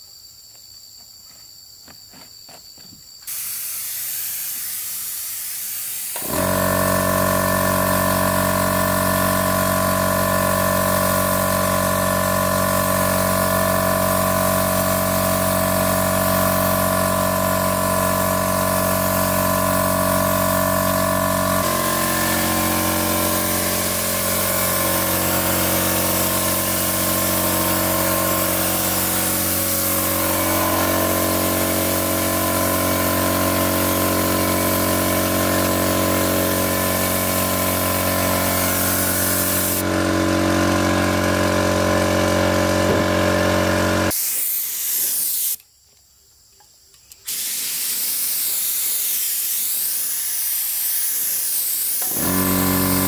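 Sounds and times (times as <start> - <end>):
machine engine running: 6.2 - 44.1, 52.0 - 53.0.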